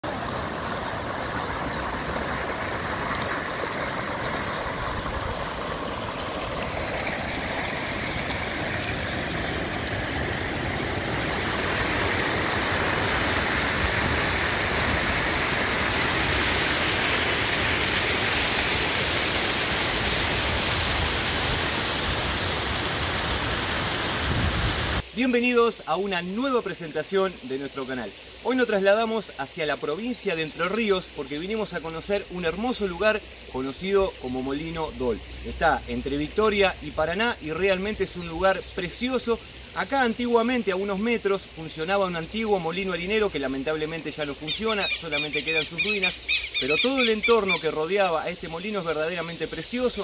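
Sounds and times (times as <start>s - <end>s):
small waterfall pouring into pool: 0.0s - 25.0s
water rushing over rocks: 0.0s - 25.5s.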